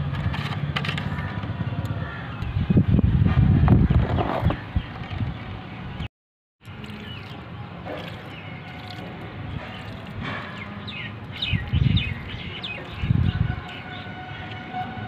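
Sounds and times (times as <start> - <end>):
outdoor background noise: 0.0 - 15.0
loud low rumbles: 1.0 - 5.0.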